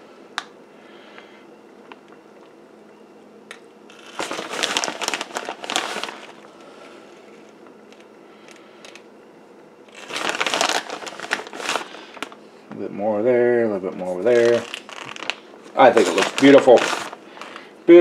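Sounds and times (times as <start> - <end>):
plastic bag crinkling: 3.9 - 7.0, 9.9 - 12.4, 14.0 - 18.0.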